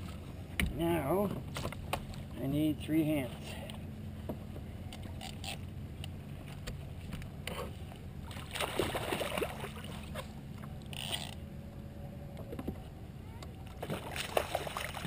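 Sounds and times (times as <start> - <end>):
steady low rumble: 0.0 - 15.0
fish splashing in water: 8.2 - 10.2, 13.8 - 15.0.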